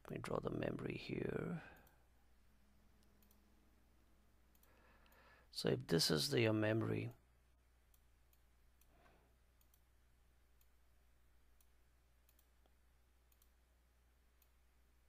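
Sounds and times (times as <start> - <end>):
faint room hum: 0.0 - 15.0
computer mouse clicks: 3.0 - 3.4, 4.5 - 5.3, 9.6 - 9.9, 11.6 - 13.6.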